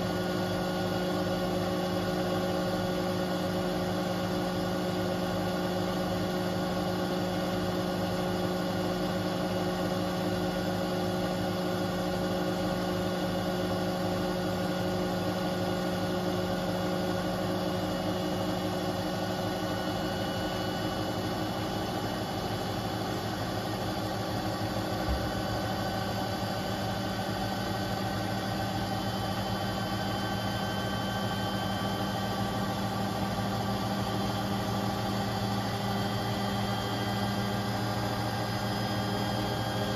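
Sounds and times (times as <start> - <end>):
washing machine drum spinning: 23.2 - 35.8.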